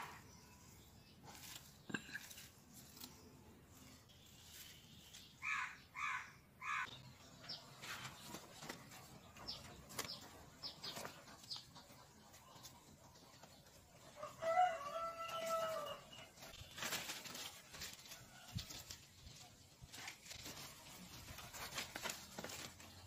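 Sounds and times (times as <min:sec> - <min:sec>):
leaves rustling and crackling: 0:01.2 - 0:05.7, 0:14.2 - 0:23.0
rooster crowing: 0:14.2 - 0:16.0.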